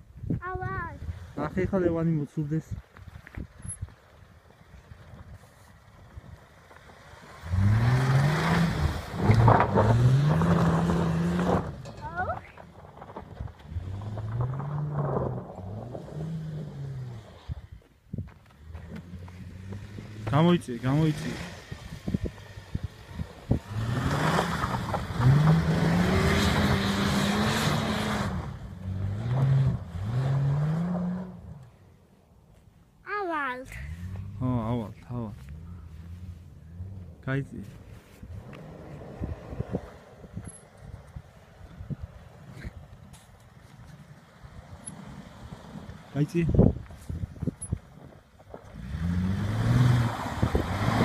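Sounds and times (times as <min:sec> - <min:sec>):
tyres spinning through snow: 0:01.0 - 0:17.7, 0:18.5 - 0:31.5, 0:33.9 - 0:51.0
car engine revving hard: 0:07.3 - 0:11.8, 0:23.5 - 0:31.6, 0:48.7 - 0:51.0.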